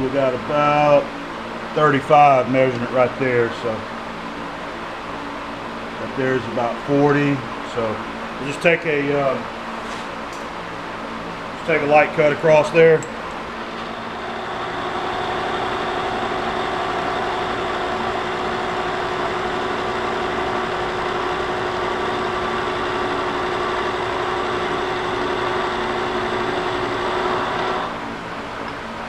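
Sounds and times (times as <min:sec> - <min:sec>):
milling machine running hum: 0:00.0 - 0:29.0
end mill cutting metal: 0:11.6 - 0:28.8.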